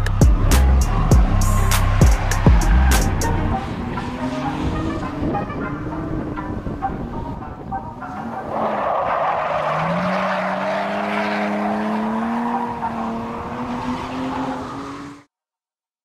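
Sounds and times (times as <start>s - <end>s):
car engine revving hard: 8.2s - 15.3s.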